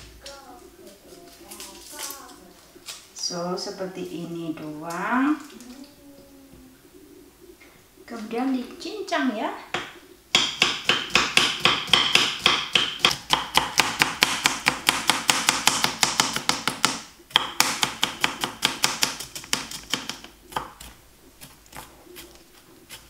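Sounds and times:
knife chopping on plastic board: 0:09.8 - 0:22.3.

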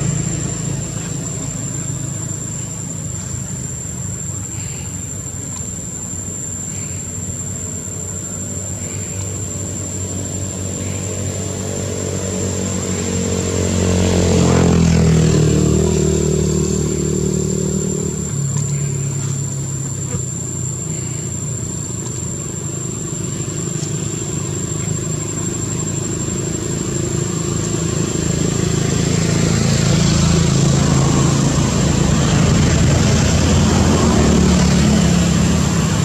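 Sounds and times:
vehicle engine passing: 0:00.0 - 0:03.9, 0:10.0 - 0:20.5, 0:22.9 - 0:36.0.

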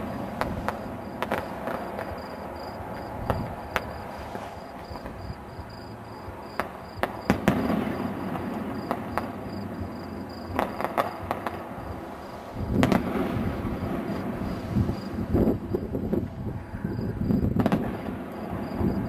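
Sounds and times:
firework shells bursting: 0:00.0 - 0:05.3, 0:06.5 - 0:11.8, 0:12.5 - 0:15.2.

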